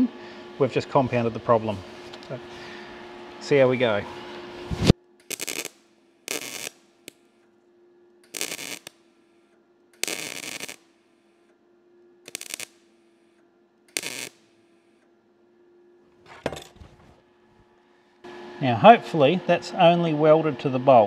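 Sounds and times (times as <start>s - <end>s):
faint steady hum: 0.0s - 21.0s
welder arc crackling: 4.7s - 7.4s, 8.2s - 11.5s, 12.2s - 15.0s.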